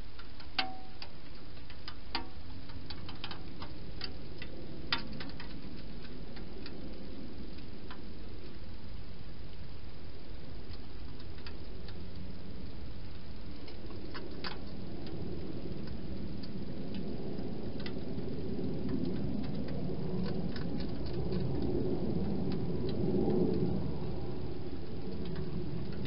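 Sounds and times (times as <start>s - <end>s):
hedgehog eating clicks and crunches: 10.7s - 23.8s.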